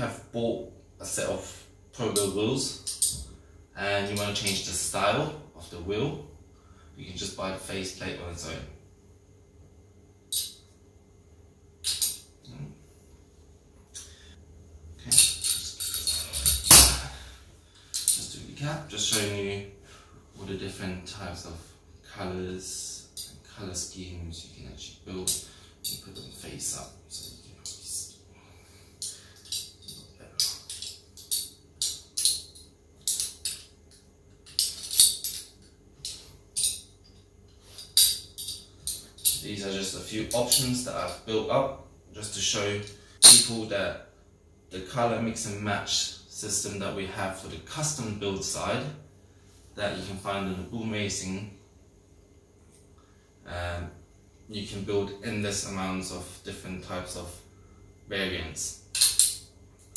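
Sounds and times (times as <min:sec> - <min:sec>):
metal parts clicking: 0:02.2 - 0:03.2, 0:10.3 - 0:10.6, 0:11.8 - 0:12.3, 0:15.1 - 0:17.2, 0:17.8 - 0:18.3, 0:29.0 - 0:39.4, 0:40.3 - 0:40.9, 0:43.2 - 0:43.5, 0:58.9 - 0:59.5
metal wheels clinking: 0:15.1 - 0:17.0.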